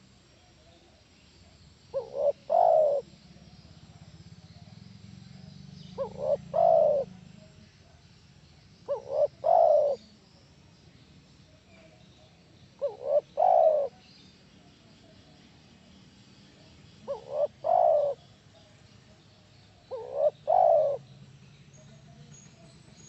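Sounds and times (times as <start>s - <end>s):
dove cooing: 1.9s - 3.5s, 5.4s - 7.5s, 8.8s - 10.1s, 12.8s - 14.0s, 17.0s - 18.3s, 19.9s - 21.1s.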